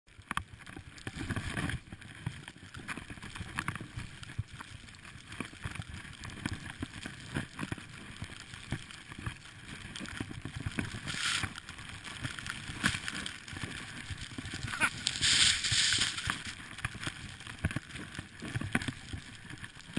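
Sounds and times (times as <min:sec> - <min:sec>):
skis hissing through snow: 0:10.9 - 0:11.6, 0:14.3 - 0:16.7.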